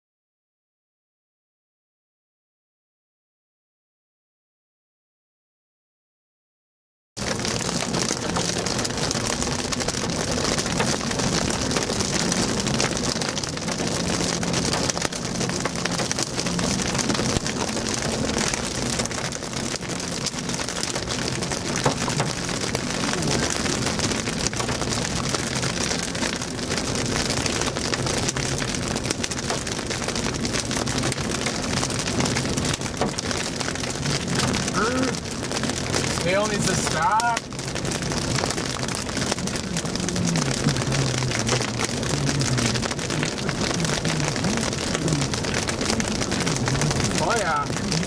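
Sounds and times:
car engine humming: 7.2 - 48.0
rain and hail on car roof: 7.2 - 48.0.

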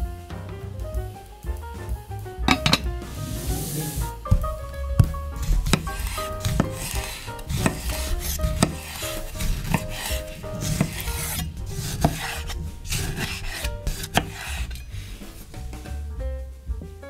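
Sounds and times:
knife knocking on cutting board: 2.5 - 3.0
knife slicing tomatoes: 4.3 - 15.8.

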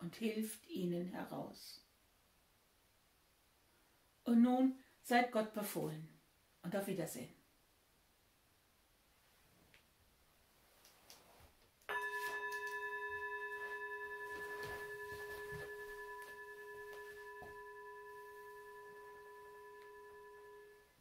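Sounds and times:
singing bowl ringing: 11.9 - 21.0.

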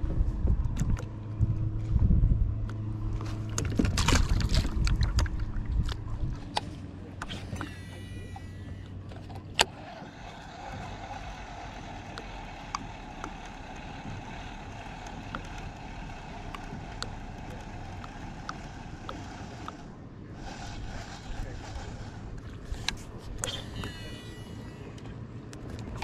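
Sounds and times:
kayak on calm water: 0.4 - 26.0
fishing reel ticks: 9.6 - 19.8, 22.7 - 25.0.

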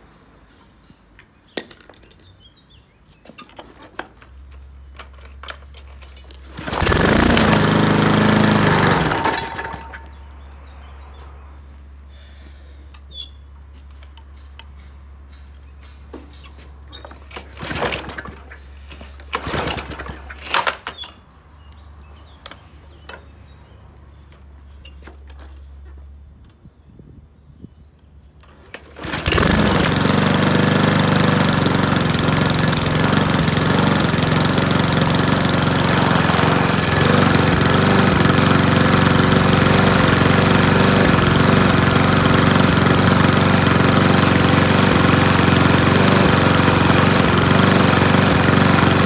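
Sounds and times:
lawn mower engine: 3.9 - 10.4, 16.9 - 21.6, 28.4 - 49.0.

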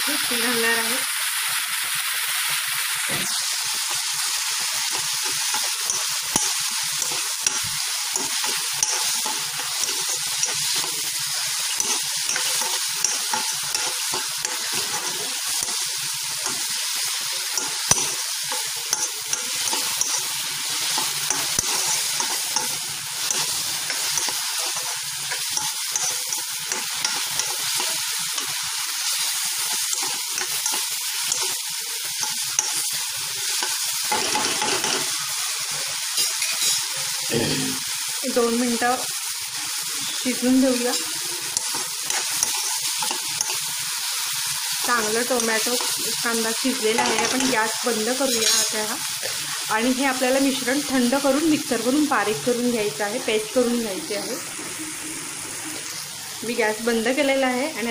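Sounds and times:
food sizzling in hot oil: 0.0 - 57.9
spoon scraping a pan: 3.1 - 35.3, 36.1 - 37.0, 39.7 - 49.6.

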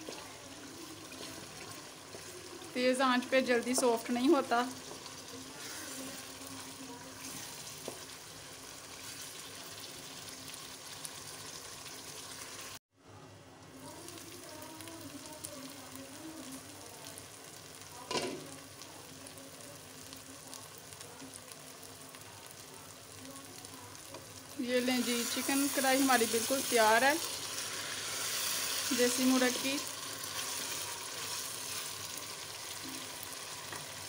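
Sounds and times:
wooden spatula stirring: 0.0 - 2.7
food sizzling in oil: 0.0 - 12.8, 13.7 - 34.0.

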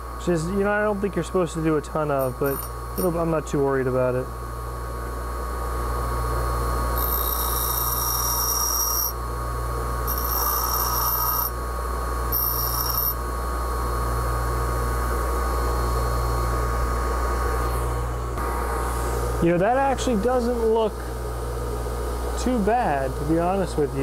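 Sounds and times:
high-pitched grinding hiss: 0.2 - 3.3, 7.0 - 9.2, 10.1 - 11.6, 12.3 - 13.2
bench grinder motor humming: 2.2 - 3.3, 6.9 - 9.2, 10.0 - 11.6, 12.2 - 13.3.

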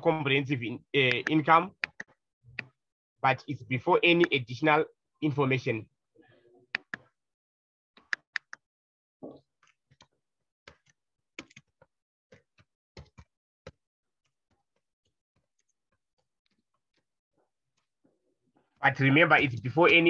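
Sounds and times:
mouse clicking: 1.0 - 2.8, 6.8 - 7.1, 8.0 - 8.7.

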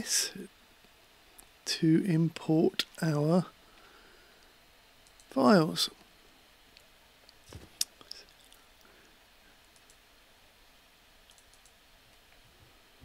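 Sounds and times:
computer mouse clicks: 9.6 - 10.0, 11.3 - 11.8.

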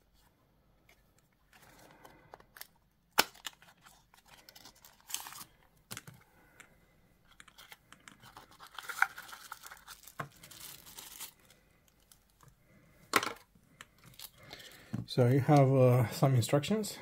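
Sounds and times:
plastic packaging crinkling and tearing: 1.6 - 5.7, 7.3 - 12.4, 14.0 - 14.7.

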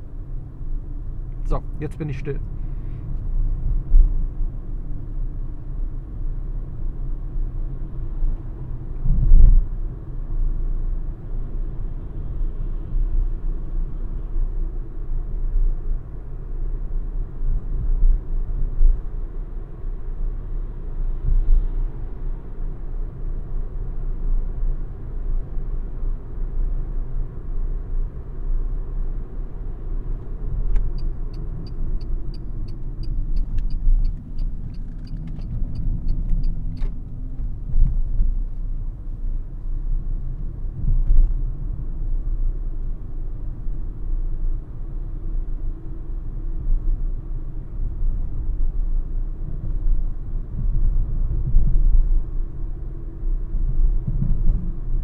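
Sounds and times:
tyre and road rumble: 30.2 - 39.2
regular high ticking: 30.9 - 36.9.

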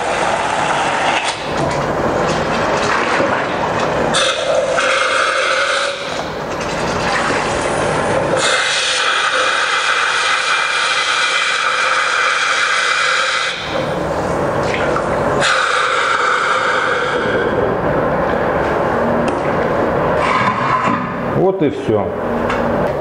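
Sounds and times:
sanitiser spraying from keg valve: 4.1 - 6.3, 7.6 - 13.9, 15.4 - 17.4.

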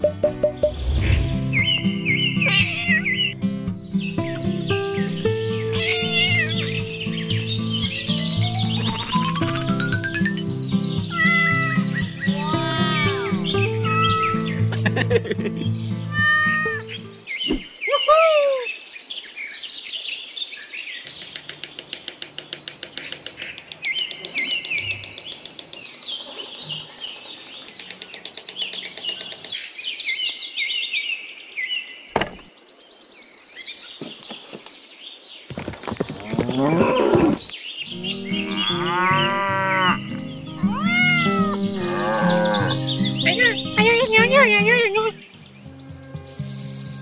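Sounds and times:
cattle mooing: 38.0 - 40.1, 41.2 - 42.9.

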